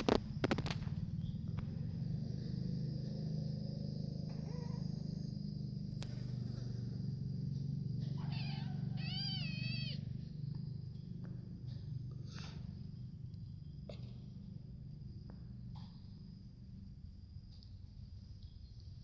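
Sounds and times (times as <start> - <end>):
steady low hum: 0.0 - 19.0
kittens meowing: 4.3 - 5.3, 8.0 - 10.2.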